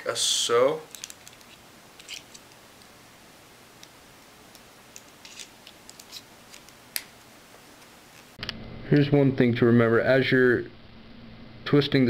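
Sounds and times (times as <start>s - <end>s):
cable jack parts clicking: 0.9s - 2.6s.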